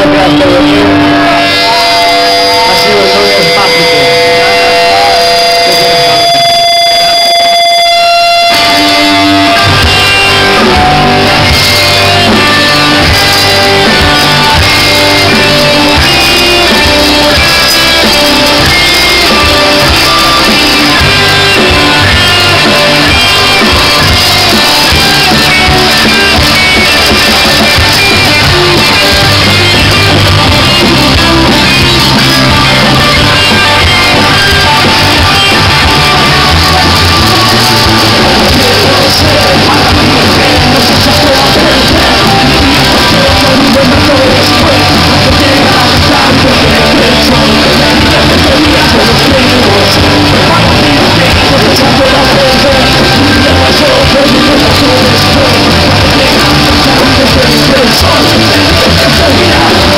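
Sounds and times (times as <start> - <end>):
held guitar notes: 0.0 - 59.9
rock band playing: 0.0 - 59.9.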